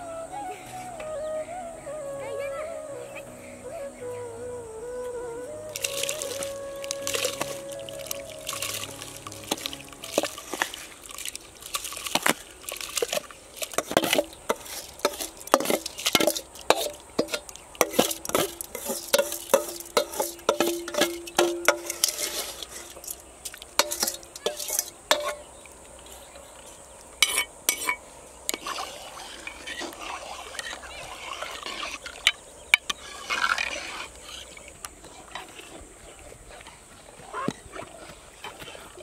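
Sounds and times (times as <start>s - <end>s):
metal spoon scraping a bowl: 13.8s - 23.2s, 23.8s - 25.5s, 27.2s - 34.5s.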